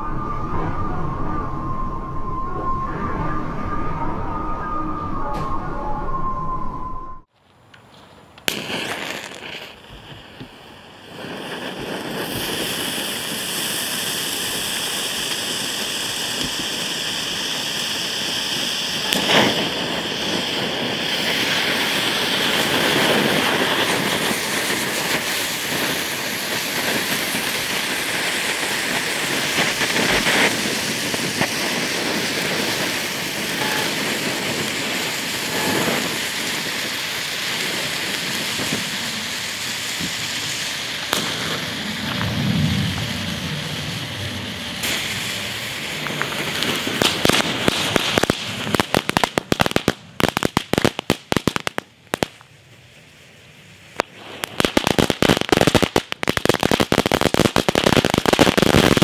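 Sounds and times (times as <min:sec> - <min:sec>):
firework crack: 0:07.2 - 0:59.0
firework fountains hissing: 0:08.2 - 0:59.0.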